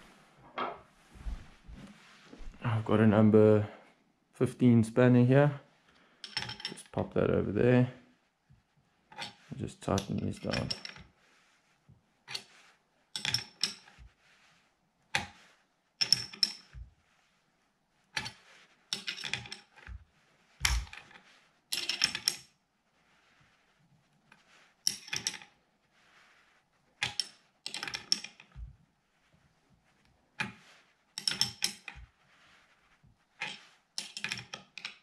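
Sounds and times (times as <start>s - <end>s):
spanner clinking on metal nuts: 31.2s - 31.9s.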